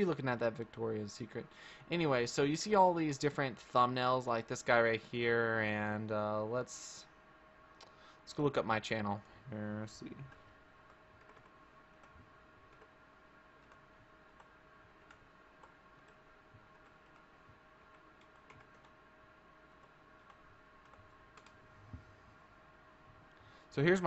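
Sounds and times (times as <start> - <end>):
keyboard typing: 10.2 - 13.0, 13.6 - 19.0, 19.7 - 21.6.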